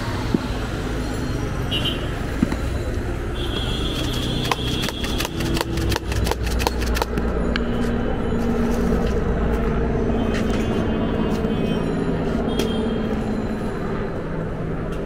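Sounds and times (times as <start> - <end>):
traffic rumble: 0.0 - 15.0
vehicle engine drone: 0.0 - 15.0
food mixed in a cup rattling: 3.9 - 7.1.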